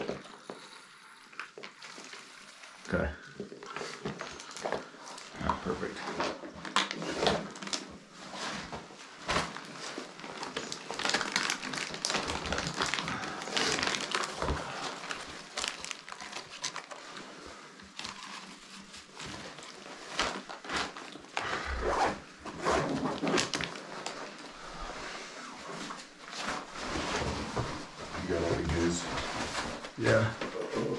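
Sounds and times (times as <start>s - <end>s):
backpack and plastic bladder rustling: 3.4s - 30.9s.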